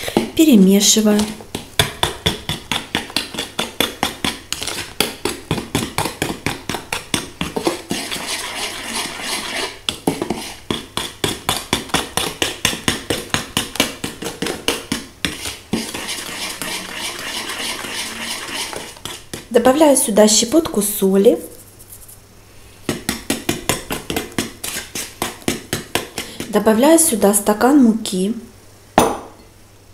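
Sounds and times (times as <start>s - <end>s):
spoon scraping bowl: 7.5s - 11.3s, 15.3s - 19.5s, 23.8s - 25.4s.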